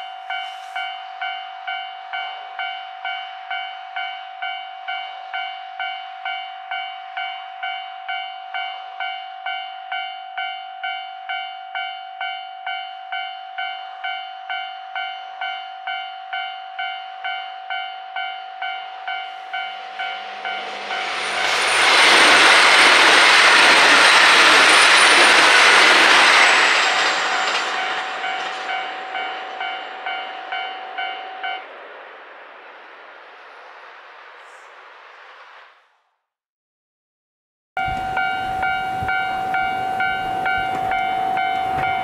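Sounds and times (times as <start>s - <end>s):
level-crossing alarm ringing: 0.0s - 31.8s, 37.8s - 42.0s
train passing at speed: 0.0s - 36.2s, 37.8s - 42.0s
thin high whine: 16.3s - 35.8s.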